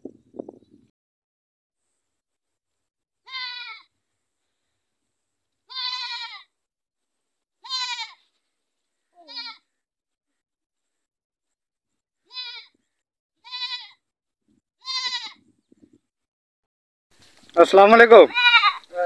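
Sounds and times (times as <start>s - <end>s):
goats bleating: 3.2s - 3.9s, 5.6s - 6.5s, 7.6s - 8.3s, 9.2s - 9.7s, 12.2s - 12.8s, 13.4s - 14.0s, 14.8s - 15.4s, 18.2s - 19.0s.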